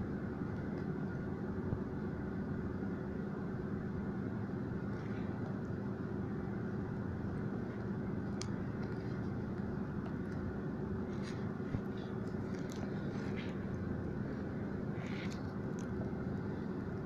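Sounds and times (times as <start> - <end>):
low room hum: 0.0 - 17.0
hands handling cables and tape: 7.8 - 16.3.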